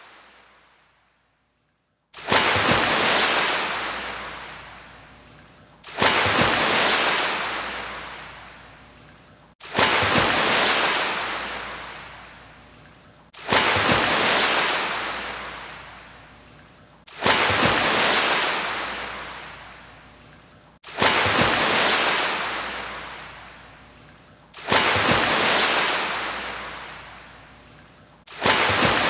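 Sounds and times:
ocean waves breaking: 0:02.2 - 0:05.0, 0:05.8 - 0:08.6, 0:09.6 - 0:12.4, 0:13.4 - 0:16.2, 0:17.1 - 0:19.9, 0:20.8 - 0:23.7, 0:24.6 - 0:27.4, 0:28.3 - 0:29.0.

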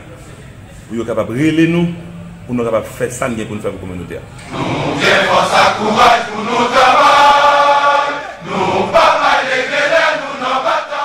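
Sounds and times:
voices chanting in chorus: 0:04.5 - 0:11.0.

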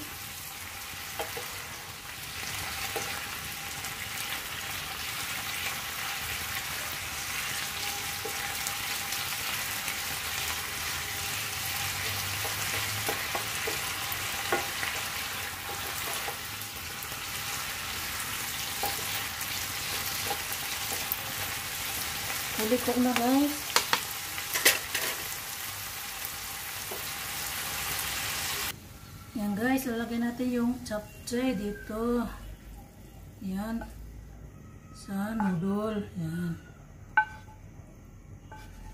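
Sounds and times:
vegetables sizzling in oil: 0:00.0 - 0:28.8
spatulas tapping and scraping a pan: 0:01.1 - 0:01.7, 0:02.8 - 0:03.3, 0:11.8 - 0:16.5, 0:18.6 - 0:21.4, 0:23.1 - 0:25.3, 0:37.2 - 0:37.6, 0:38.5 - 0:38.9.

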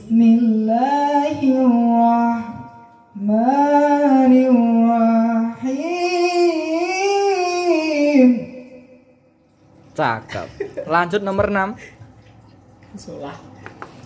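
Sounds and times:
person singing with vocal effect: 0:00.0 - 0:09.1.

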